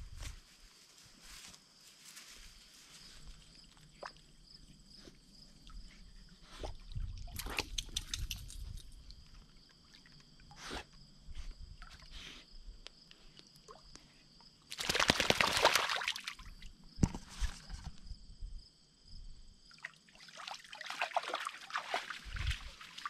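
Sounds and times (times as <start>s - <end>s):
dog splashing through water: 14.7s - 16.4s, 20.4s - 23.0s.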